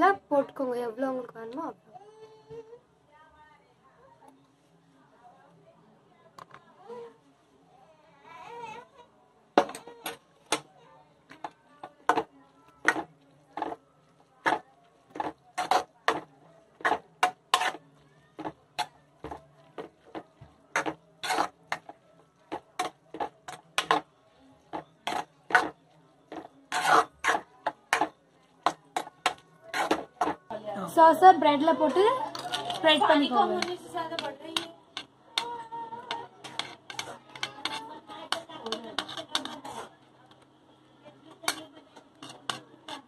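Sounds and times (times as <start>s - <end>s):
metal spoon clinking on pan: 33.4s - 39.7s, 41.4s - 43.0s.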